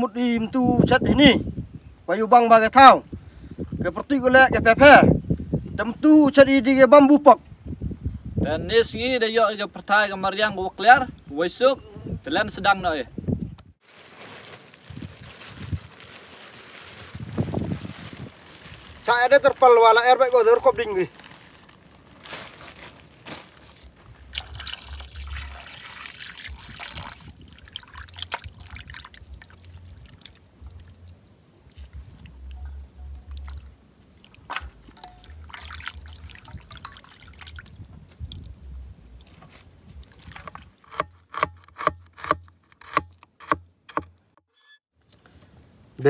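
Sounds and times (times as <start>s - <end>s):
rustling and handling noises: 13.8s - 25.6s, 39.2s - 40.7s
low rumble: 29.2s - 33.8s, 37.4s - 39.3s.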